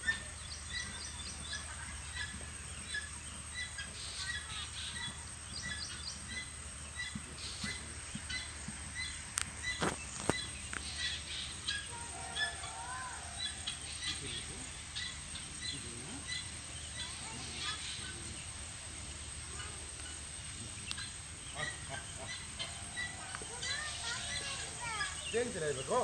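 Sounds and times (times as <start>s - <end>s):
small birds chirping: 0.0s - 26.0s
steady outdoor noise: 0.0s - 26.0s.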